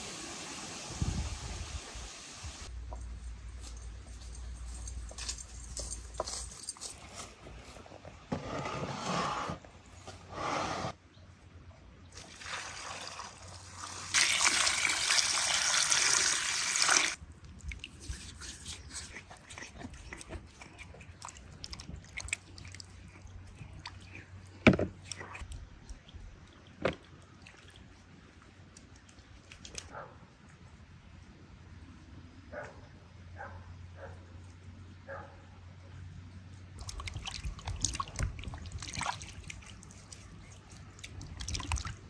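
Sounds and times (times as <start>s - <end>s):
water pouring and splashing: 0.0s - 2.7s, 12.1s - 29.9s, 36.8s - 42.0s.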